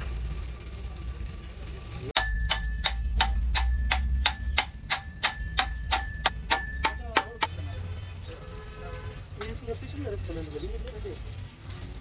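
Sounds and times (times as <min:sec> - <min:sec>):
hammer striking metal: 0:02.2 - 0:07.6.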